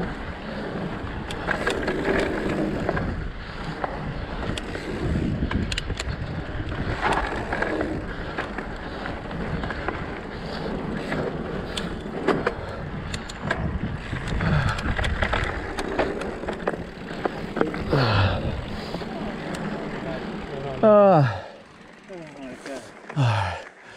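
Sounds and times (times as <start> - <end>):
wind over microphone: 0.0 - 19.2
bike clicks and rattles: 0.0 - 23.9
tyres rushing on dirt: 0.0 - 23.9.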